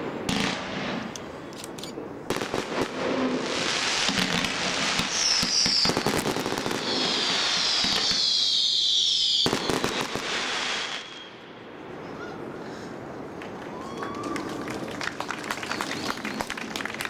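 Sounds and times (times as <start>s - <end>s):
firework shots and crackling: 0.0s - 1.1s, 2.3s - 11.3s
firework falling whistle: 5.0s - 11.5s.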